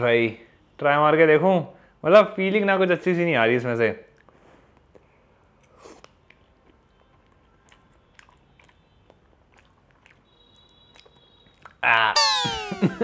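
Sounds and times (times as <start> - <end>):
chewing with mouth clicks: 4.1 - 11.8.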